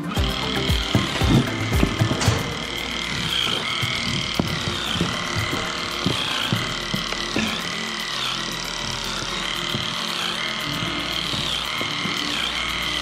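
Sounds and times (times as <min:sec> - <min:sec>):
electric clippers buzzing: 0:00.0 - 0:13.0.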